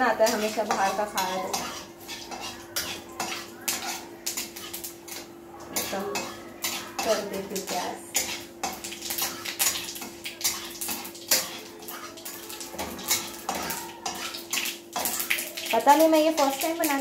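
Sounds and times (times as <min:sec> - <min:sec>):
metal spatula scraping pan: 0:00.0 - 0:15.5
seeds spluttering in hot oil: 0:00.0 - 0:17.0.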